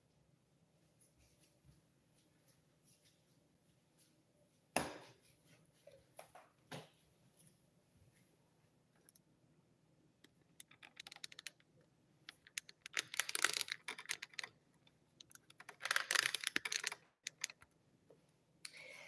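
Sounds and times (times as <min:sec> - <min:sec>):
handling noise clicking and rustling: 0:10.2 - 0:17.8.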